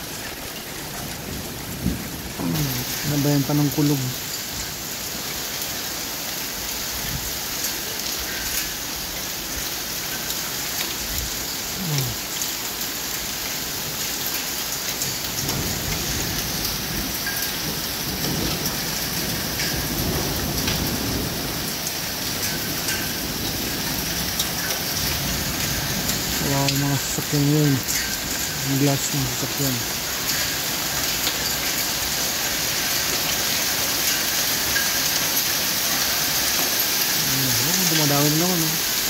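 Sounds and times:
hailstones ticking: 0:00.0 - 0:39.0
rain and hail pattering on roof: 0:00.0 - 0:39.0
low rumble of thunder: 0:01.0 - 0:03.5, 0:15.1 - 0:24.4.

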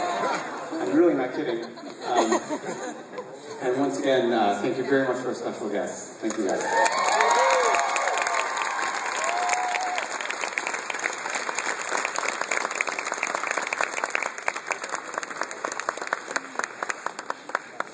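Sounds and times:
audience applauding: 0:06.3 - 0:17.9
audience cheering: 0:06.5 - 0:10.6.

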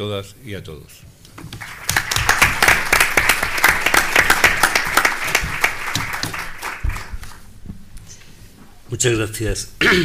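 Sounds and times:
audience applauding: 0:01.5 - 0:07.4.

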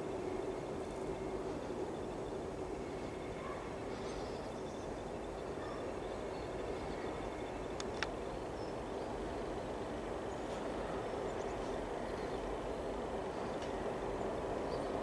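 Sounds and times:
diesel locomotives droning: 0:00.0 - 0:15.0
outdoor noise: 0:00.0 - 0:15.0
sharp clicks: 0:07.8 - 0:08.1.

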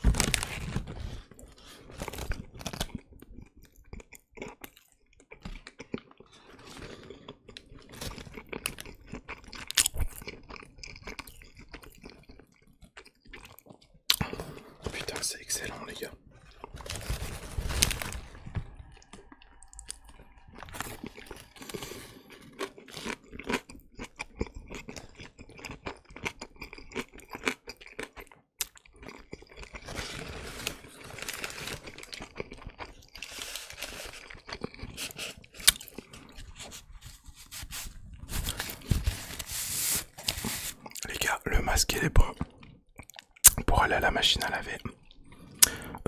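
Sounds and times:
chewing with mouth clicks: 0:02.7 - 0:14.4, 0:18.8 - 0:29.9, 0:32.0 - 0:33.4, 0:42.2 - 0:43.7.

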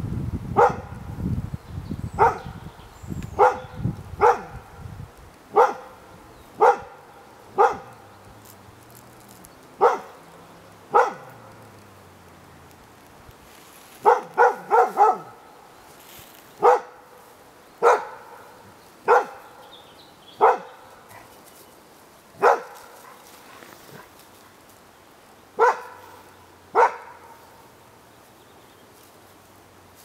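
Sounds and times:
dog barking: 0:00.6 - 0:01.0, 0:02.2 - 0:02.6, 0:03.4 - 0:04.8, 0:05.5 - 0:08.1, 0:09.8 - 0:10.2, 0:10.9 - 0:11.5, 0:14.0 - 0:15.5, 0:16.6 - 0:17.2, 0:17.8 - 0:19.7, 0:20.4 - 0:21.3, 0:22.4 - 0:23.2, 0:25.6 - 0:27.4.

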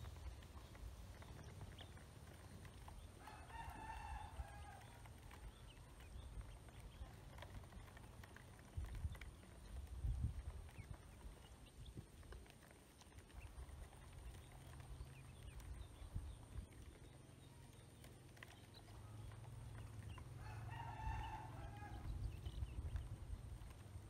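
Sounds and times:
ducklings peeping: 0:00.0 - 0:24.0
low steady rumble: 0:00.0 - 0:24.0
rooster crowing: 0:03.2 - 0:05.1, 0:20.4 - 0:22.1.

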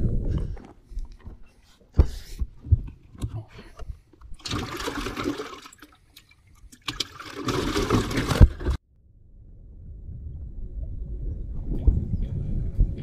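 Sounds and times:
water sloshing and splashing: 0:04.2 - 0:08.8.

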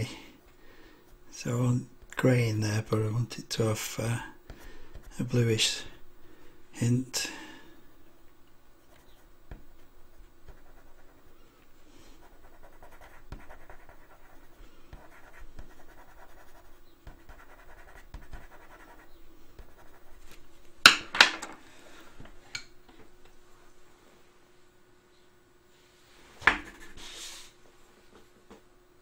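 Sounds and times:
pencil scratching on paper: 0:10.1 - 0:11.1, 0:12.2 - 0:20.2, 0:26.6 - 0:27.1.

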